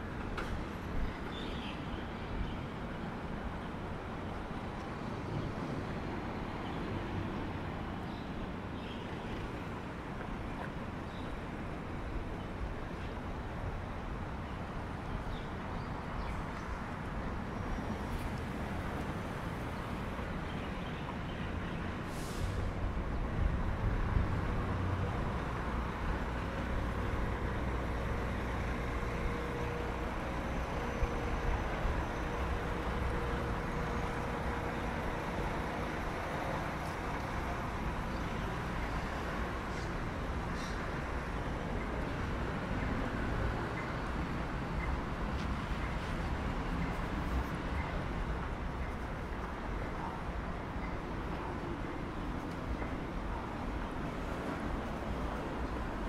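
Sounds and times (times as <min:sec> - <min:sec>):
road traffic: 0:00.0 - 0:56.0
heavy vehicle rumble: 0:16.3 - 0:56.0
brief hiss: 0:22.1 - 0:22.7.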